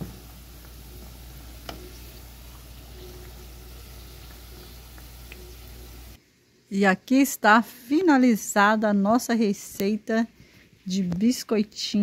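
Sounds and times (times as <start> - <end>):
oil sizzling and bubbling: 0.0 - 6.7.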